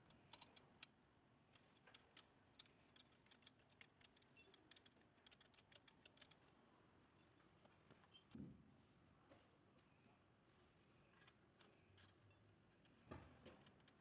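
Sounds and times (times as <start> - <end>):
light metal clicks of nut turning: 0.1 - 6.5.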